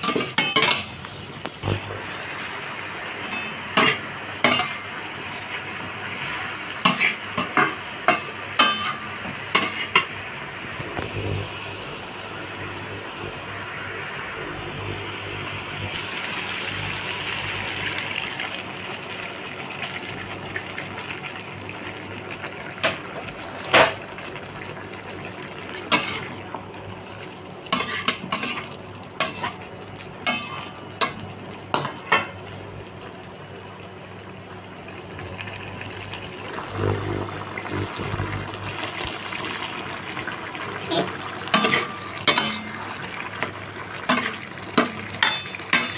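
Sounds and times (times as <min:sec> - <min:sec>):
chicken sizzling in a wok: 0:00.0 - 0:45.9
low hum: 0:36.4 - 0:39.0.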